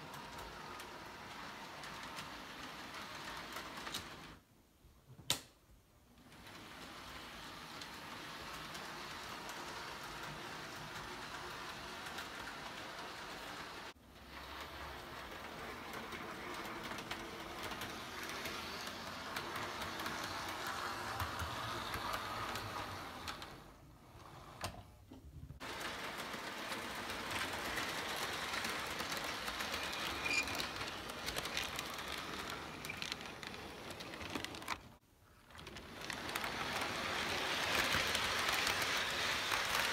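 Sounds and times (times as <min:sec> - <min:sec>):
wheels clicking on rail joints: 0:06.2 - 0:24.8, 0:25.6 - 0:39.9
model train motor whir: 0:35.6 - 0:39.9.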